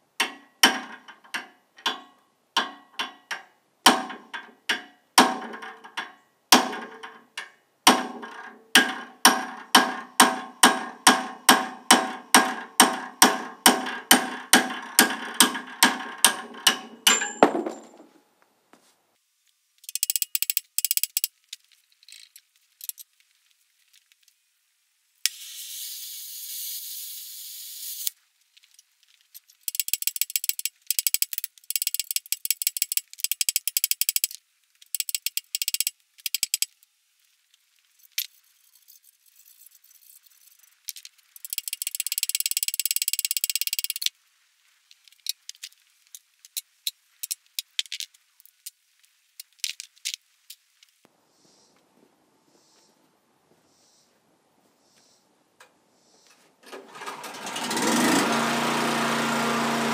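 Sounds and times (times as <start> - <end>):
hammer striking steel: 7.9 - 18.0
hiss: 51.3 - 51.8.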